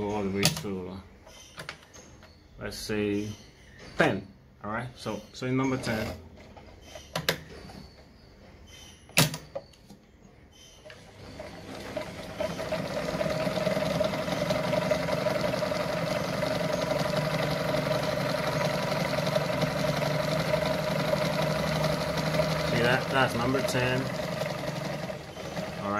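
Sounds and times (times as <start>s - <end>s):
sewing machine motor humming: 10.8s - 25.9s.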